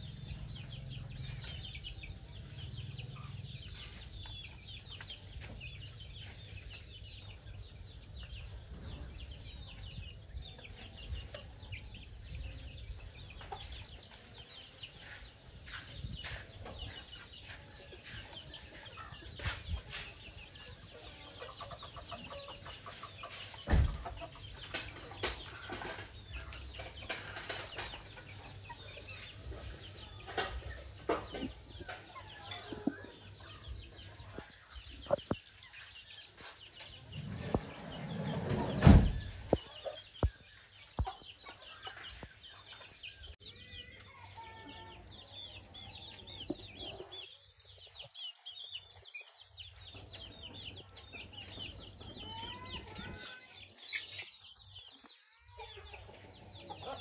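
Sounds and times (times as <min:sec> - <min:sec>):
chickens clucking: 0:00.0 - 0:57.0
chicks peeping: 0:00.0 - 0:57.0
loud thump: 0:38.5 - 0:39.5.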